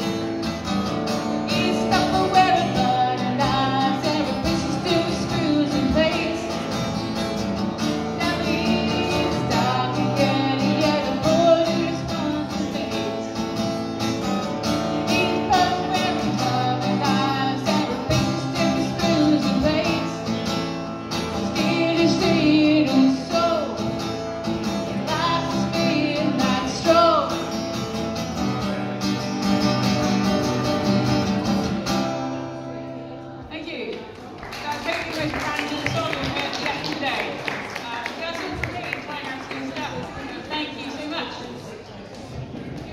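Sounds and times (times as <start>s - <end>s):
acoustic guitar strumming: 0.0s - 33.4s.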